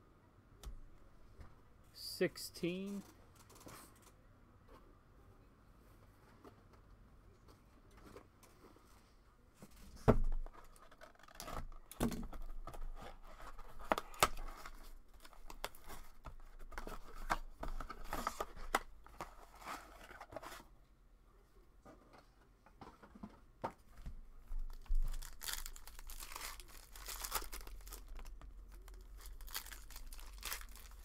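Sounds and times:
packaging tearing and crinkling: 24.7 - 31.0.

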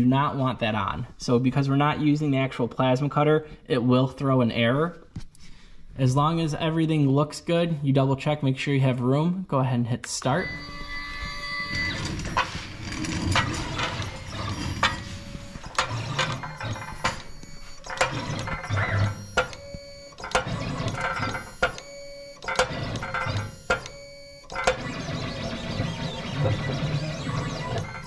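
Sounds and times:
stepper motors whining: 10.3 - 28.0.

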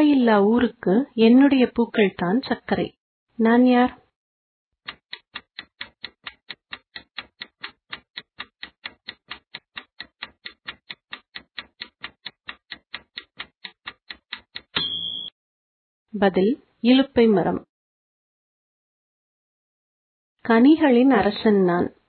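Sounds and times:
rapid clock-like ticking: 4.8 - 14.8
short high tone: 14.8 - 15.3.

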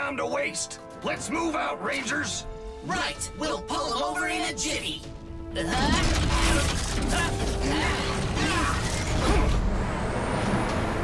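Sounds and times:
mechanical clanking and clicking: 5.7 - 9.6.

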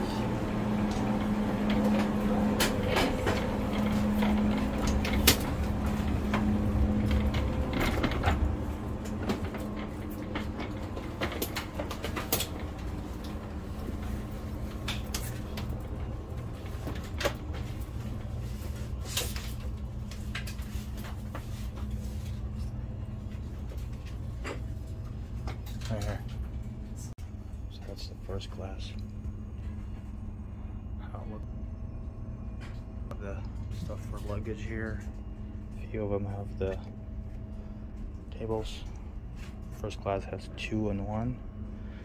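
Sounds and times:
clicks and knocks of boarding passengers: 0.0 - 18.0
low hum of train systems: 0.0 - 42.0.

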